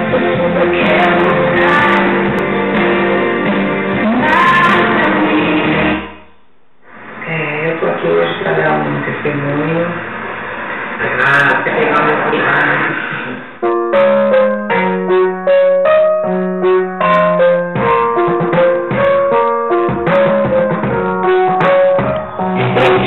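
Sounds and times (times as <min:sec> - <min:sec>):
keyboard playing melody and chords: 0:00.0 - 0:06.2, 0:13.6 - 0:23.0.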